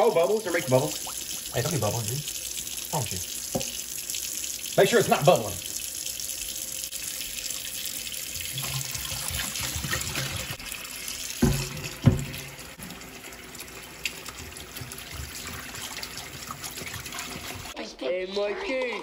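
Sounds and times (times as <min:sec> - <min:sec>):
faucet running into sink: 0:00.0 - 0:17.8
skillet clunking on sink: 0:11.4 - 0:12.5.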